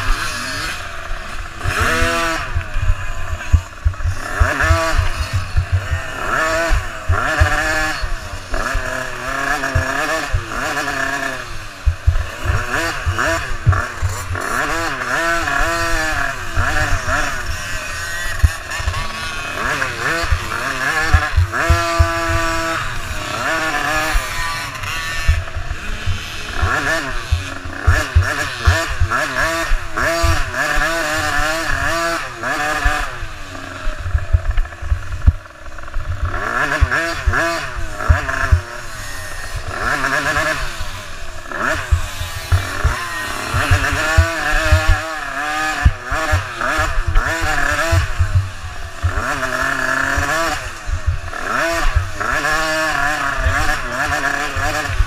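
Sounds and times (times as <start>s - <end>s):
dirt bike engine revving: 0.0s - 55.0s
low thumps: 2.6s - 6.2s, 11.8s - 14.4s.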